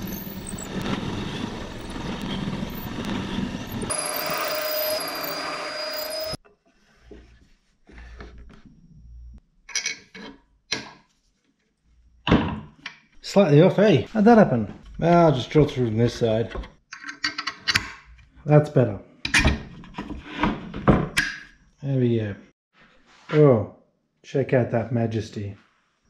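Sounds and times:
drill press boring through wood: 0.0s - 6.4s.

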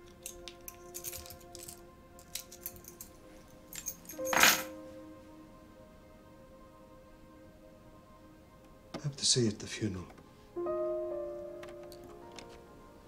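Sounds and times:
keys jingling: 0.0s - 4.8s
soft sustained background music: 0.0s - 13.0s.

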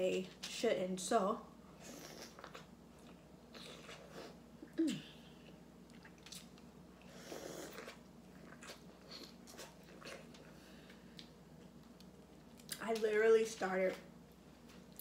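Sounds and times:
wet chewing and sucking: 1.8s - 4.4s, 5.9s - 11.3s.

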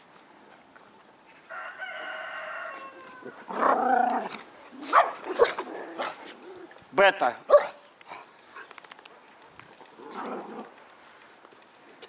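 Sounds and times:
rooster crowing: 1.5s - 3.5s
dogs growling in play: 3.3s - 6.8s, 9.8s - 10.9s.

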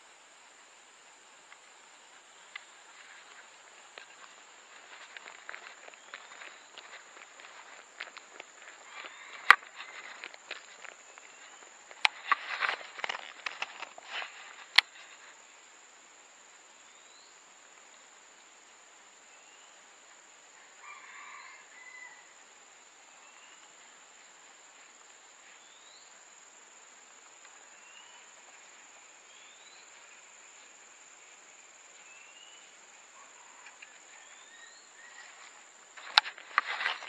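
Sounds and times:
insect drone: 0.0s - 37.0s
rustling: 2.2s - 15.4s, 35.0s - 37.0s.

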